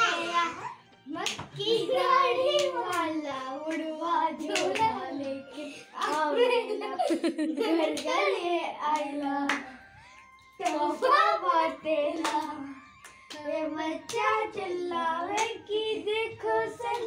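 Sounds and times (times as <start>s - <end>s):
children singing: 0.0s - 0.7s, 10.6s - 17.0s
hand claps: 0.9s - 1.8s, 2.4s - 5.4s, 6.0s - 6.5s, 7.8s - 11.2s, 12.1s - 14.5s, 15.3s - 15.6s.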